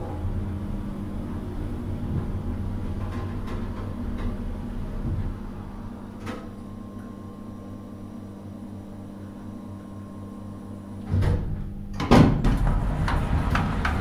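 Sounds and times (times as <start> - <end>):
elevator motor hum: 0.0 - 14.0
elevator clunk: 11.0 - 14.0
elevator doors rattling slide: 11.1 - 14.0.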